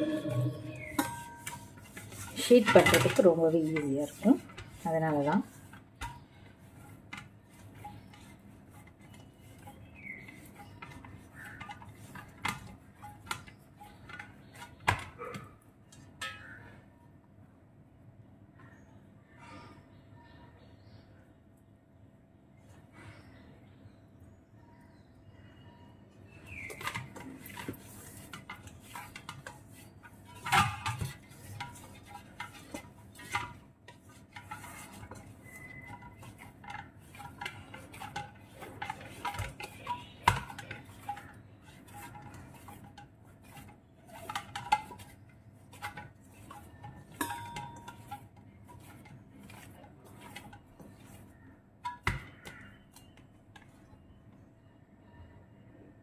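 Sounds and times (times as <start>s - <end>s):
metal bowl knocking and clinking: 0.0s - 5.4s, 10.1s - 16.8s, 26.6s - 53.7s
hands kneading dough: 0.0s - 16.6s, 26.2s - 54.2s.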